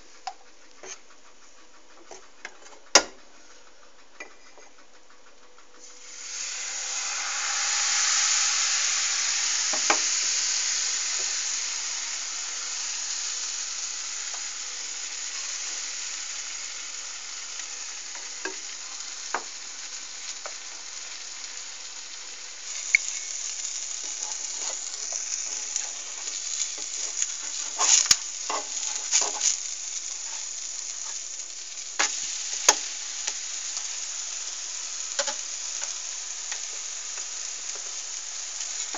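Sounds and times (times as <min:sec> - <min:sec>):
batter sizzling in frying pan: 0:05.7 - 0:38.9
spatula scraping pan: 0:22.7 - 0:32.8.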